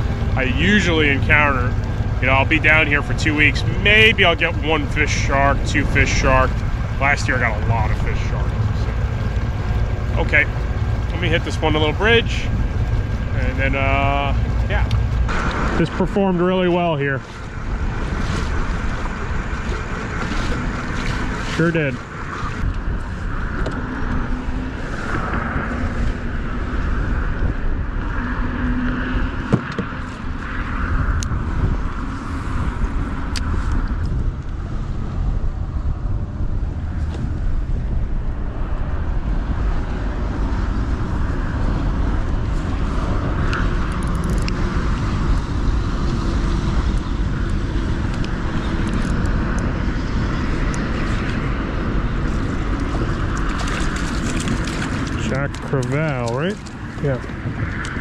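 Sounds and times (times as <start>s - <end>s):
highway traffic: 0.0s - 58.0s
wind rumble on microphone: 0.0s - 58.0s.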